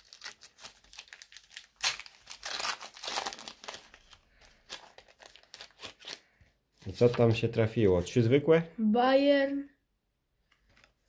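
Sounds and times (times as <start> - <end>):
wrapper tearing and crinkling: 0.0 - 6.3.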